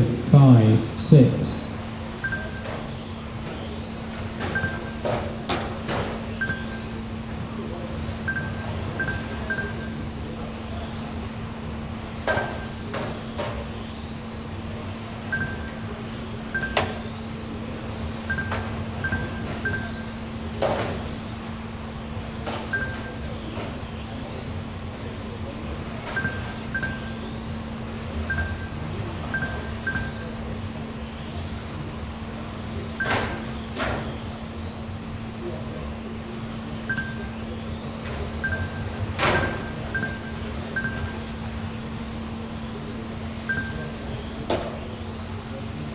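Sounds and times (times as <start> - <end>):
steady low hum: 0.0 - 45.9
short beeps: 2.2 - 2.9, 4.5 - 5.1, 6.3 - 7.0, 8.2 - 10.1, 12.3 - 12.9, 15.2 - 15.9, 16.5 - 17.1, 18.3 - 20.2, 22.7 - 23.2, 26.1 - 27.3, 28.3 - 30.4, 33.0 - 33.6, 36.8 - 37.4, 38.4 - 41.4, 43.5 - 44.1.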